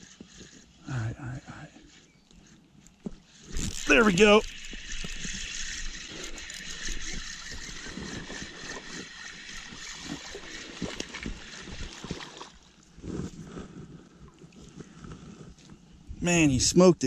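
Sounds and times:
fishing reel cranking: 0:00.0 - 0:12.8
fish splashing: 0:03.3 - 0:12.9.

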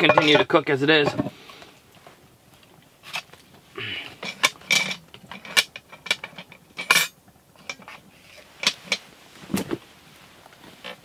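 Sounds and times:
cast iron pot clanking: 0:00.0 - 0:01.4, 0:04.0 - 0:09.1.

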